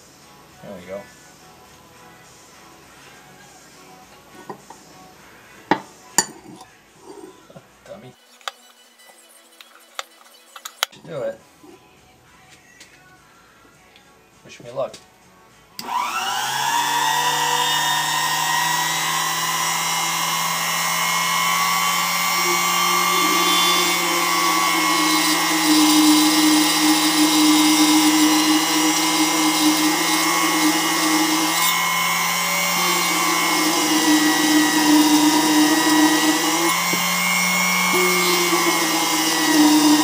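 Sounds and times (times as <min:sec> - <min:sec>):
drill bit cutting steel: 0:15.8 - 0:40.0
drill press motor whine: 0:15.8 - 0:40.0.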